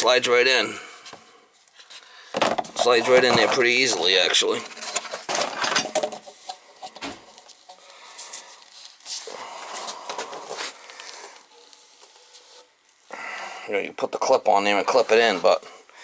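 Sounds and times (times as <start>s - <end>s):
rubbing and rustling: 1.6s - 12.8s.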